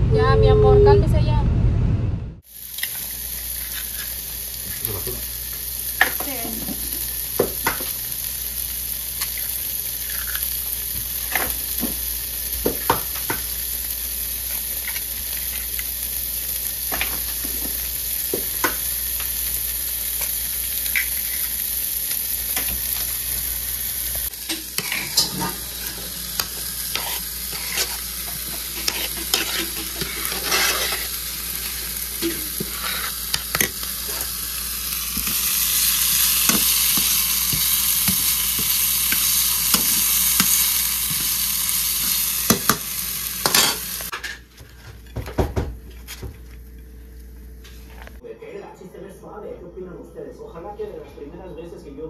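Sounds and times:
sauce sizzling in a frying pan: 2.4s - 44.1s
spoon stirring and scraping: 24.5s - 34.3s.

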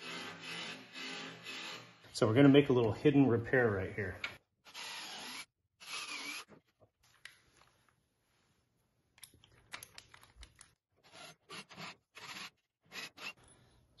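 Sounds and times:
cordless drill boring wood: 0.0s - 2.1s, 4.6s - 6.6s, 11.0s - 13.4s
light clicks of screw handling: 9.2s - 10.8s.

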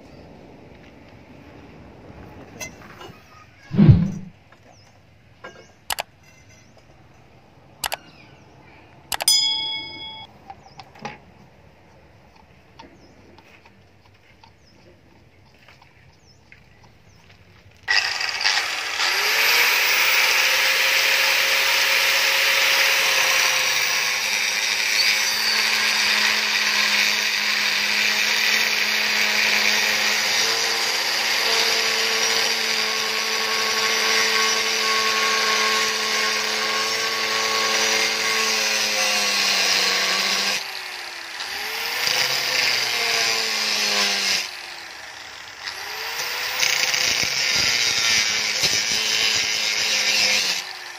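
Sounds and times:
angle grinder cutting steel: 17.9s - 50.9s.

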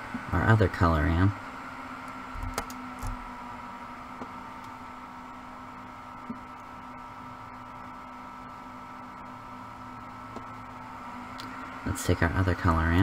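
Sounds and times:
low hum and hiss: 0.0s - 13.0s.

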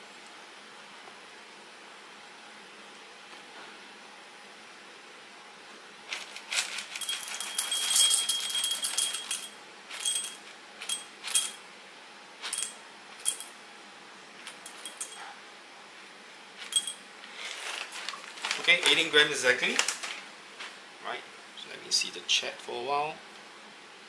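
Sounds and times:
coffee beans rattling into metal cup: 6.1s - 11.6s, 12.4s - 13.5s, 14.5s - 15.2s, 16.6s - 19.0s.

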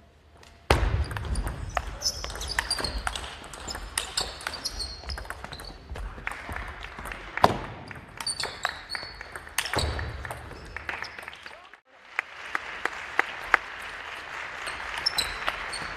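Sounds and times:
shoes squeaking on wooden floor: 1.1s - 6.0s.

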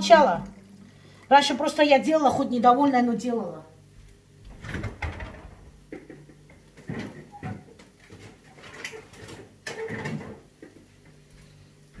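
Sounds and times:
things knocking in a refrigerator: 4.5s - 10.7s.

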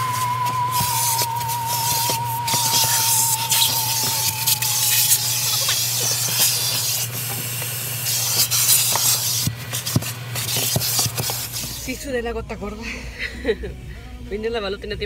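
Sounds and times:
low motor hum: 0.0s - 7.4s
vacuum hose suction hiss: 0.0s - 8.3s.

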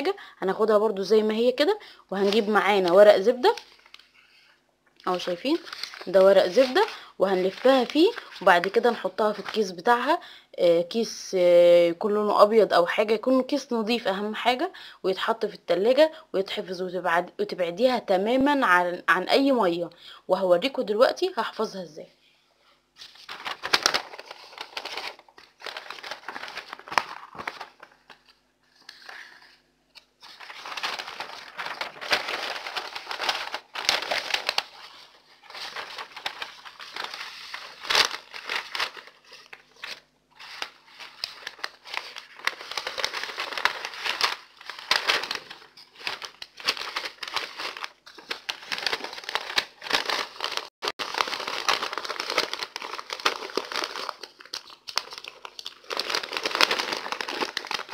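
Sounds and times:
paper crinkling and rustling: 2.2s - 4.2s, 5.1s - 9.7s, 23.0s - 57.9s.

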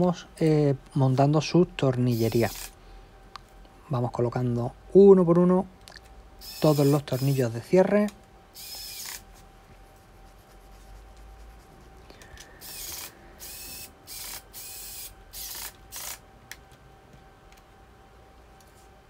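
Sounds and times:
screwdriver whirring and scraping: 2.1s - 2.8s, 6.4s - 7.4s, 8.6s - 9.3s, 12.4s - 16.2s.

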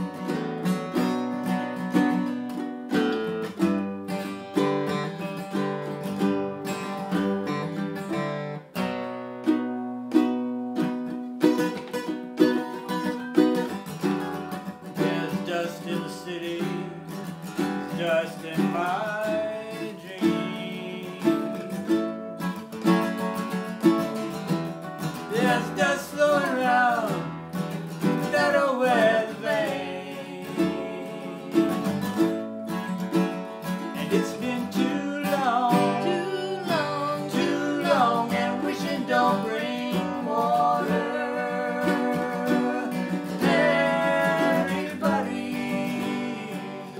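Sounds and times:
acoustic guitar strumming: 0.0s - 46.9s
ukulele strumming: 0.0s - 46.9s
person singing: 12.5s - 22.2s, 25.1s - 46.9s.

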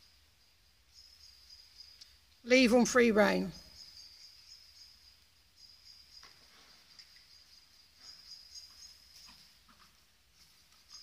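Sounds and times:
faint high-pitched pulsing trill: 0.0s - 9.5s.

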